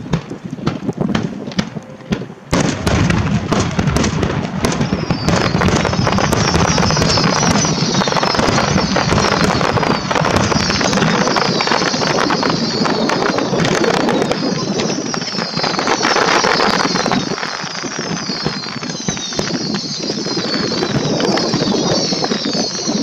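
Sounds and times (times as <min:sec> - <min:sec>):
fireworks bursting and crackling: 0:00.0 - 0:23.0
wind buffeting microphone: 0:00.0 - 0:23.0
high falling whistles: 0:04.6 - 0:23.0.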